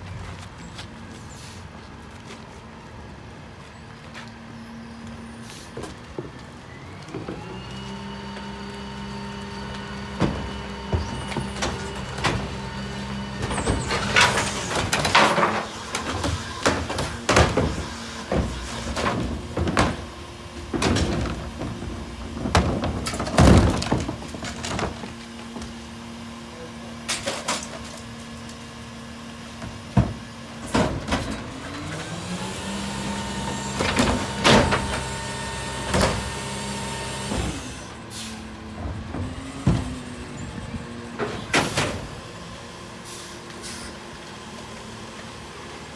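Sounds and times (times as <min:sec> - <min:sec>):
carts banging and clattering: 0:09.5 - 0:25.8, 0:29.6 - 0:36.6, 0:38.6 - 0:42.4
falling trash: 0:09.6 - 0:25.2.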